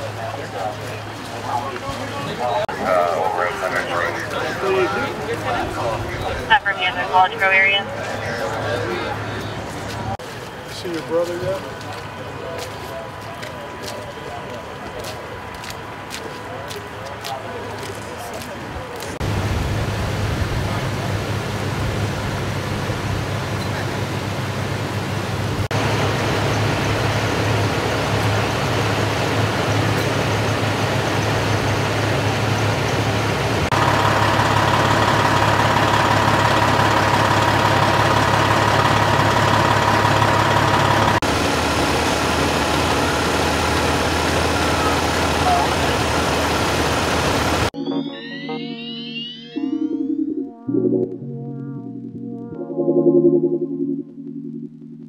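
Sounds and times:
vehicle engines idling: 0.0s - 47.8s
mid-pitched drone: 47.8s - 55.0s.

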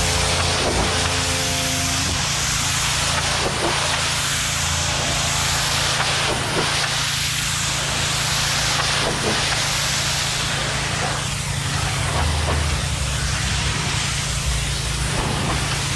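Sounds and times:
machine humming: 0.0s - 3.4s
pressure washer spray hissing: 0.0s - 15.9s.

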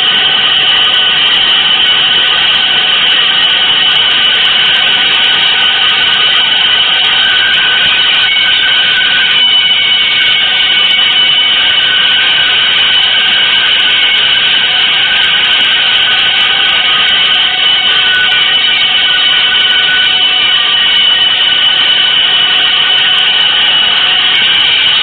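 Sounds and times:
high sustained tones: 0.0s - 25.0s.

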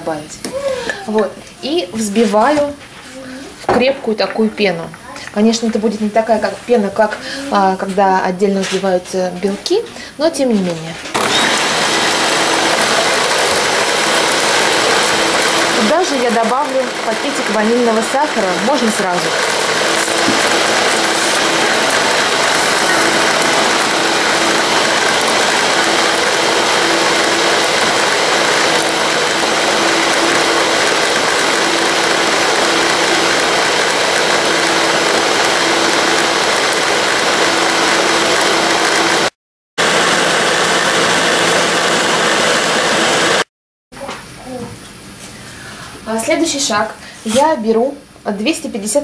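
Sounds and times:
stand mixer whisking: 11.2s - 43.5s.

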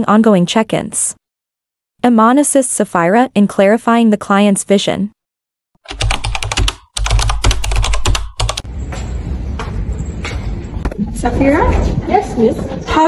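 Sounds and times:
keyboard typing clatter: 5.8s - 8.7s.

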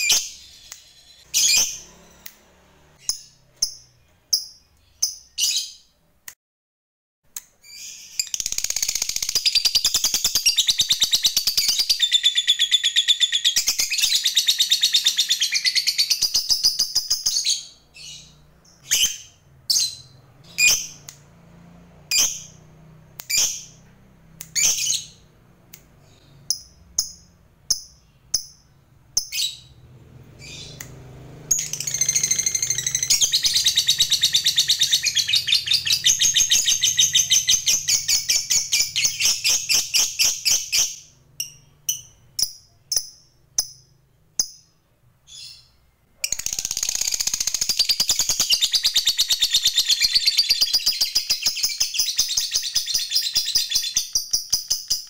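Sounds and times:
lovebird high chirps: 0.0s - 2.4s, 3.0s - 5.9s, 7.6s - 21.2s, 22.1s - 22.6s, 23.2s - 25.3s, 31.5s - 55.0s
lovebird rapid chattering trill: 8.2s - 12.0s, 46.3s - 54.8s.

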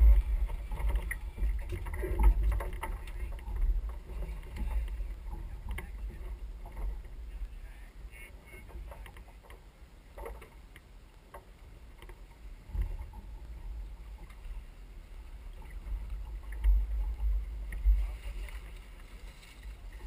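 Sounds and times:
wind rumble on microphone: 0.0s - 10.7s, 11.3s - 20.0s.

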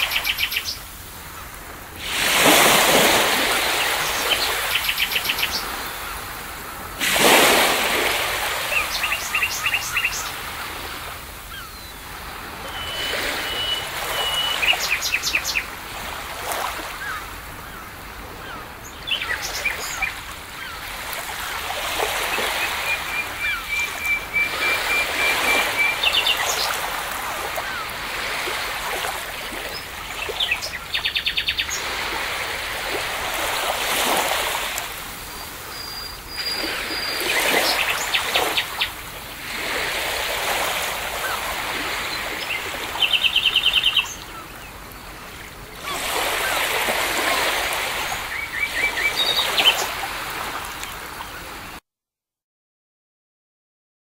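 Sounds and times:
waves washing in and out: 0.0s - 51.8s
songbirds chirping: 8.2s - 32.3s, 40.7s - 50.0s.

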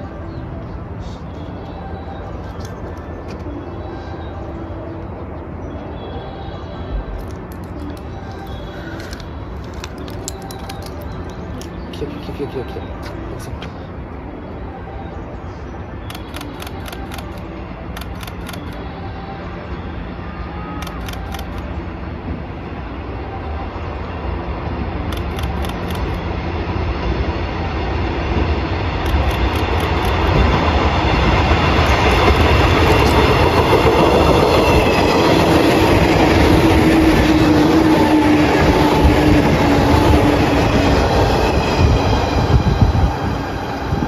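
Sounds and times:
train whine: 0.0s - 44.0s
train wheels rumbling on rails: 24.6s - 44.0s.

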